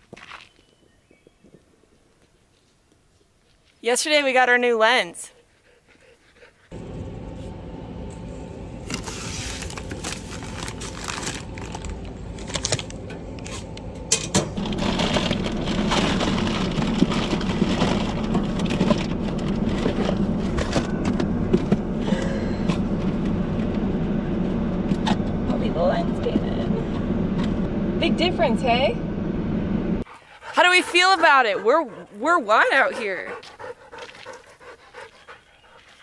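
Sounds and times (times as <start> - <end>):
steady low hum: 6.7 - 35.2
paper mailers rustling: 8.2 - 13.8, 14.6 - 20.8
paper mailer being torn open: 8.8 - 13.7, 14.6 - 19.8.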